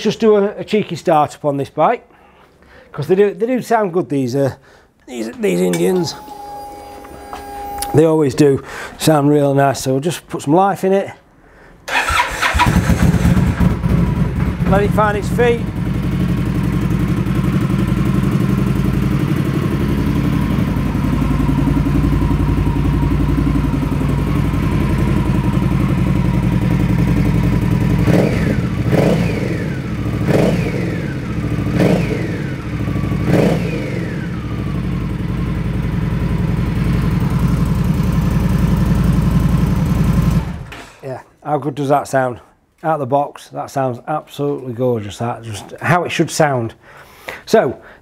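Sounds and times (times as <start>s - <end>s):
throttle blips: 6.1s - 8.0s
motorcycle engine idling: 12.0s - 40.7s.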